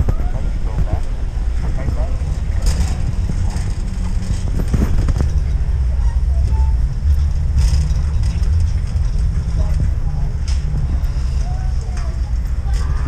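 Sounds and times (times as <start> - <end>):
shopping cart wheels rumbling: 0.0 - 13.0
shopping cart rattles and clicks: 2.3 - 10.8.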